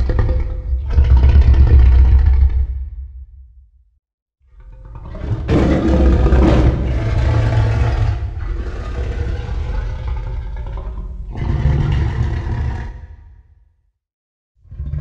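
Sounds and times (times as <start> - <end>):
monster roar: 5.0 - 13.4.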